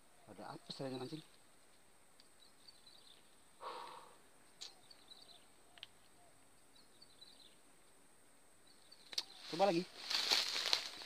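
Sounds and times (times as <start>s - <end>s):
faint bird chirps: 0.0s - 1.4s, 2.2s - 7.7s, 8.6s - 9.9s.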